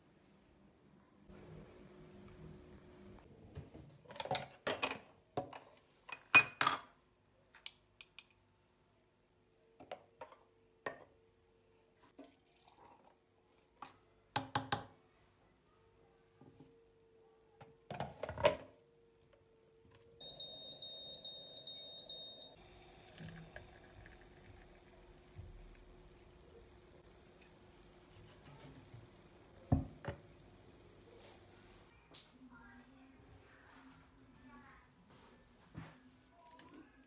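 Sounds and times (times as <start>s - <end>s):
machine low hum: 20.2s - 32.1s.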